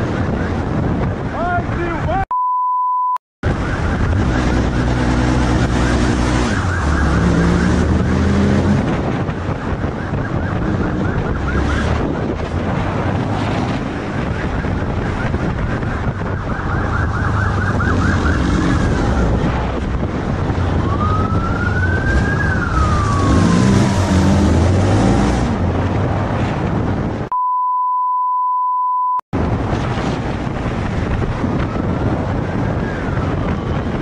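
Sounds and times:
wind noise: 0.0 - 2.2, 3.4 - 27.3, 29.3 - 34.0
censor beep: 2.3 - 3.2, 27.3 - 29.2
siren yelping and wailing: 3.4 - 12.4, 14.0 - 25.2
motorcycle engine: 16.4 - 18.9.

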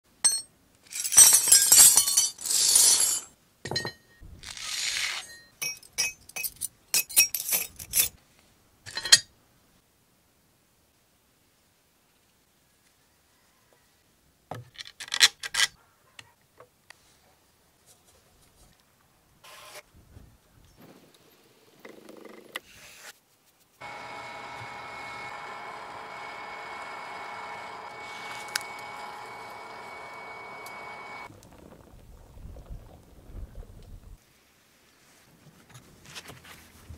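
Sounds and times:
metal pieces clinking into crucible: 0.2 - 4.0, 5.2 - 8.2
electric air blower whining: 23.8 - 31.3.

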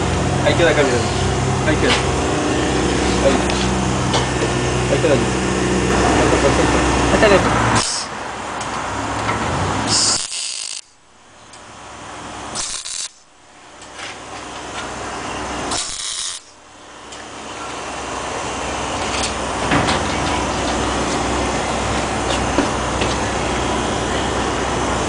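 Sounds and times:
engine low hum: 0.0 - 10.3, 10.9 - 25.0
exhaust hissing rushes: 0.0 - 10.4.

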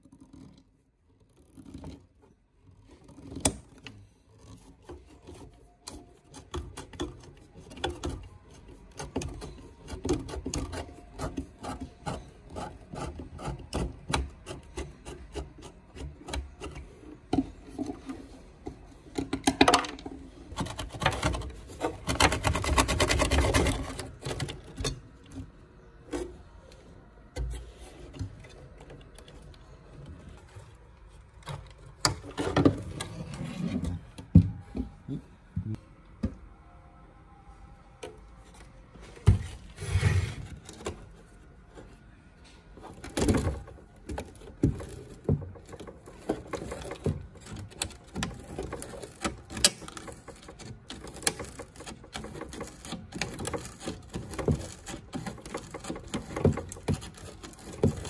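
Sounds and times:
hand scraping a hard surface: 38.9 - 42.0.

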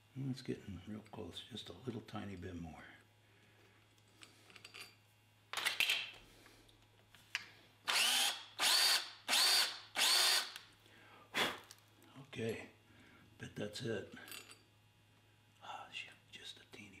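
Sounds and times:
drill bursts: 7.9 - 10.6.

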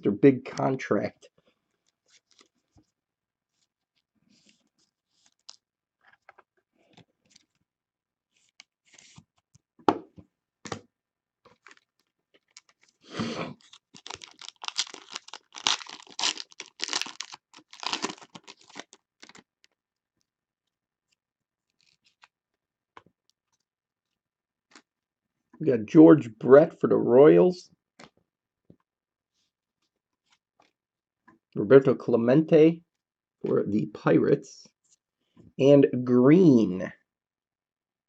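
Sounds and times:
wrapper tearing and crinkling: 11.6 - 12.8, 13.6 - 19.5.

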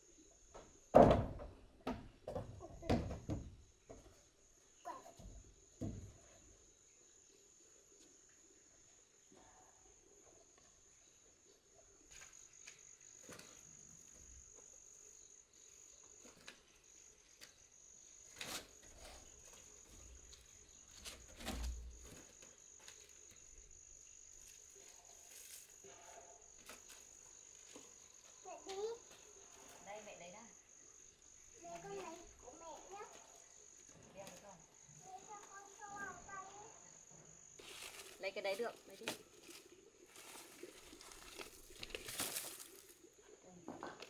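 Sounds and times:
faint knocks and rustles: 0.4 - 6.5.

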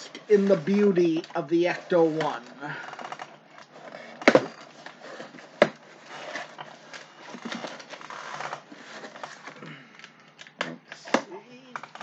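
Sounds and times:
cardboard rustling: 0.0 - 9.6.

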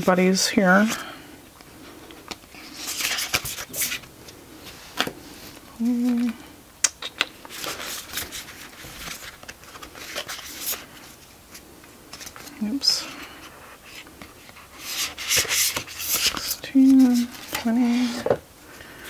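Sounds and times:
cards rustling and clicking: 2.2 - 4.1, 4.9 - 12.8, 13.4 - 18.4
person humming: 5.8 - 6.5.

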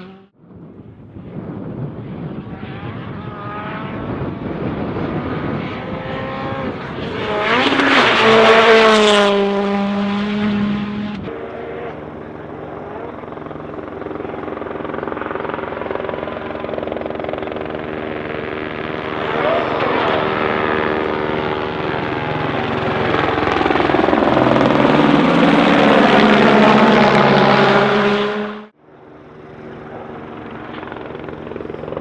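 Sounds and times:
distant rally car engine: 0.0 - 0.3, 1.8 - 32.0
rally car engine revving past: 5.0 - 12.2, 24.8 - 28.7.

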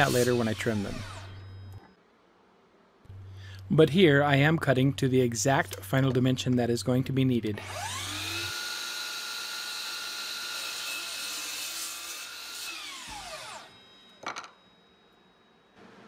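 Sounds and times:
miter saw motor whine: 0.0 - 1.9, 7.6 - 10.7, 12.2 - 14.0.

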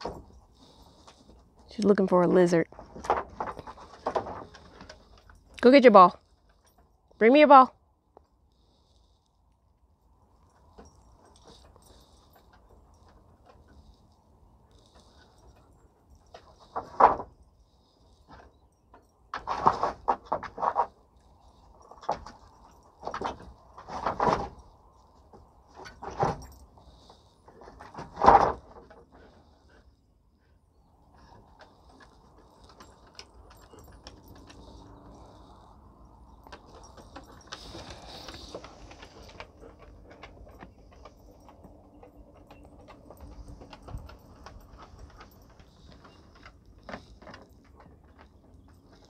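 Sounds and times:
dog scuffling among wooden boards: 31.2 - 49.0.

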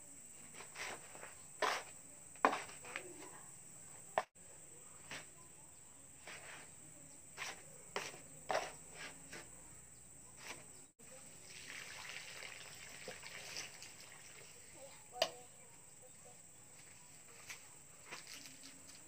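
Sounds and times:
trowel scraping dry cement mix: 0.4 - 3.0, 7.4 - 9.5.

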